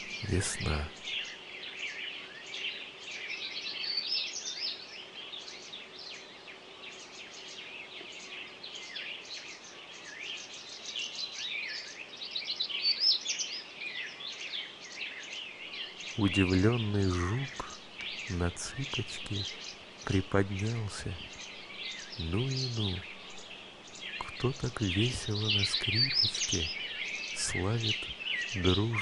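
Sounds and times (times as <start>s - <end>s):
songbirds chorus: 0.0s - 29.0s.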